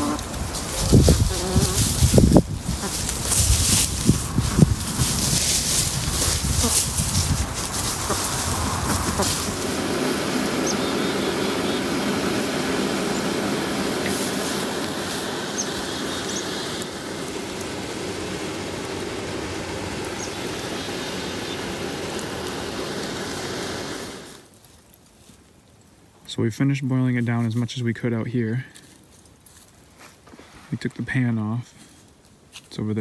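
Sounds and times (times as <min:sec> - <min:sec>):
sap boiling and bubbling: 0:00.0 - 0:25.9.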